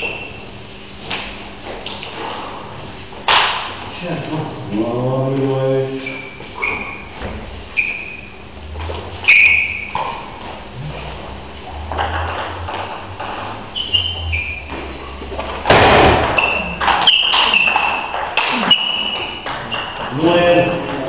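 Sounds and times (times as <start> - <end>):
table tennis ball pinging: 11.8 - 21.0.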